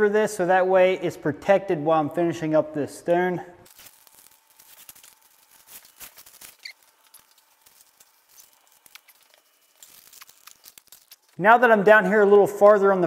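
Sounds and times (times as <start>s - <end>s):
masking paper and tape crinkling: 3.6s - 12.1s.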